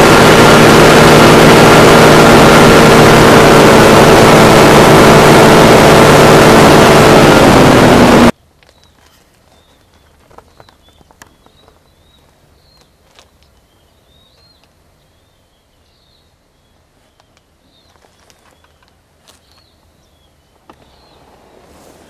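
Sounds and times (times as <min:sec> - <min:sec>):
rustling noise: 0:08.5 - 0:13.7, 0:17.0 - 0:19.7, 0:20.6 - 0:22.0
bird chirps: 0:08.7 - 0:21.4.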